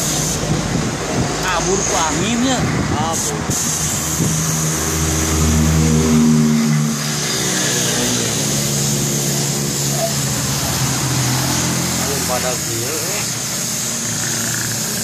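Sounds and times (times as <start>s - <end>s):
engine running and revving: 0.0s - 15.0s
steady high hiss: 7.7s - 15.0s.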